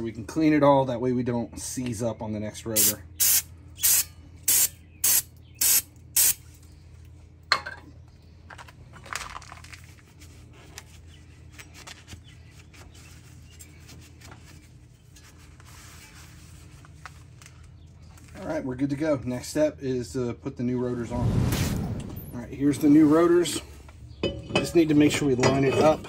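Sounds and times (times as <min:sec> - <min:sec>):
aerosol spray hissing: 0:02.8 - 0:06.4.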